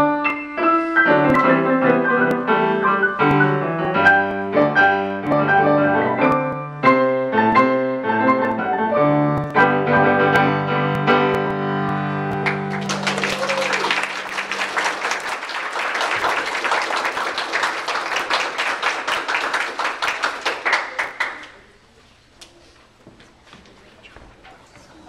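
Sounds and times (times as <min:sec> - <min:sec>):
piano duet: 0:00.0 - 0:19.3
audience applauding: 0:12.3 - 0:21.7.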